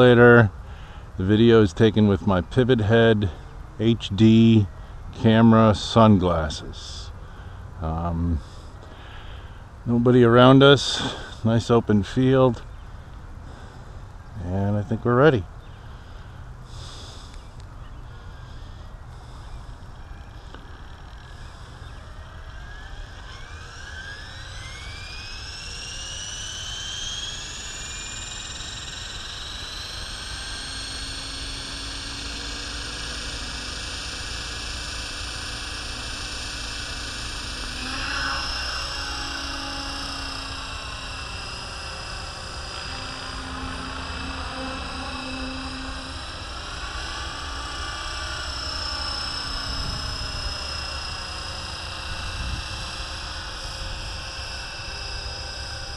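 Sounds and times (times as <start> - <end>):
electric helicopter motor whine: 0.0 - 55.9.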